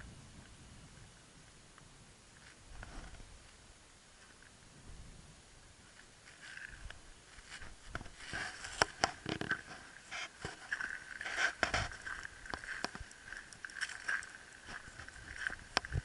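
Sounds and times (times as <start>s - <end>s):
footsteps crunching on shingle: 5.9s - 16.0s.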